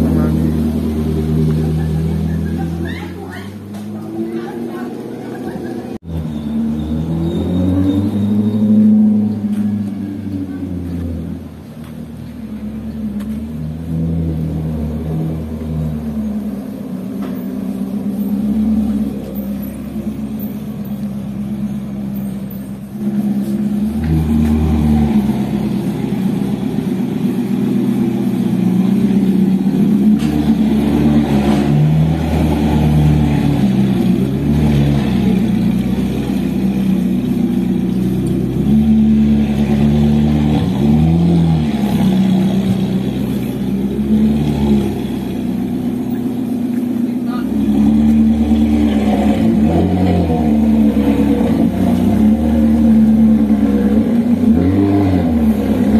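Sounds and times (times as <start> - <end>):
sports car engine running: 0.0 - 6.1, 9.3 - 55.9
engine revving: 0.0 - 11.6, 22.8 - 55.9.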